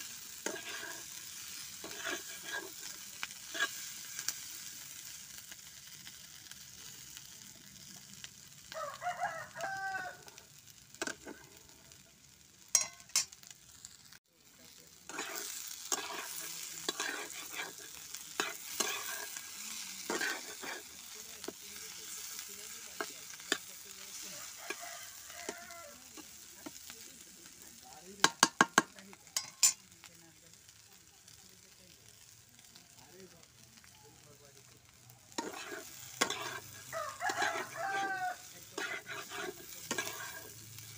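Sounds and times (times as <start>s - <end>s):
vegetables sizzling in a pan: 0.0s - 40.9s
wooden spatula scraping pan: 0.4s - 1.1s, 1.8s - 3.8s, 15.1s - 19.4s, 20.0s - 20.9s, 35.4s - 40.6s
rooster crowing: 8.7s - 10.5s, 24.2s - 26.1s, 36.5s - 38.6s.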